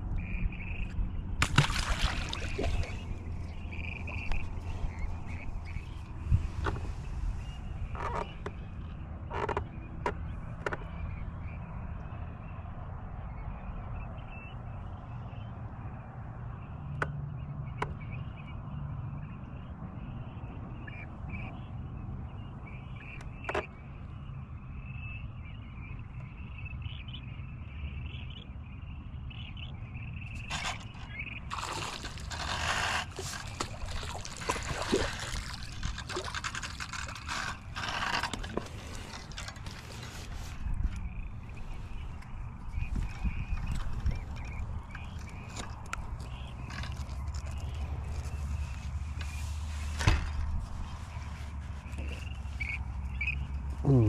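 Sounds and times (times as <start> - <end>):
fish splashing water: 1.4 - 3.3, 31.5 - 37.2.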